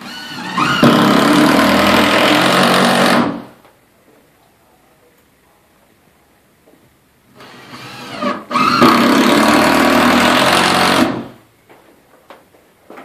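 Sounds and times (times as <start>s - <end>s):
cordless drill driving a screw: 7.4s - 11.2s.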